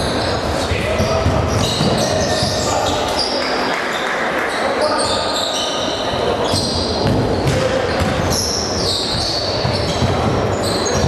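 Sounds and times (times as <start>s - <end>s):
sneakers squeaking on court: 0.0s - 3.4s, 4.5s - 11.0s
basketball bouncing: 6.5s - 8.4s, 9.1s - 11.0s.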